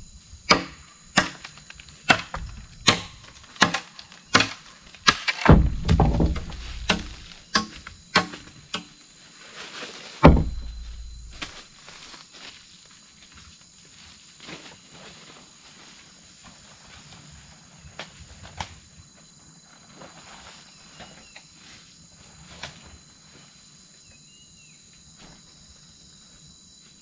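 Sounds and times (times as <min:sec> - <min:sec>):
insects droning: 0:00.0 - 0:27.0
footsteps on dry leaves: 0:03.3 - 0:07.5, 0:09.2 - 0:16.1
sharp knocks: 0:04.4 - 0:08.9, 0:10.2 - 0:11.5.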